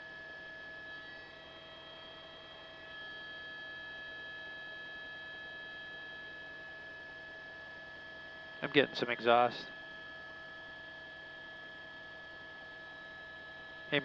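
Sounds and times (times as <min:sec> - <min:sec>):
helicopter intercom whine and hum: 0:08.5 - 0:14.0.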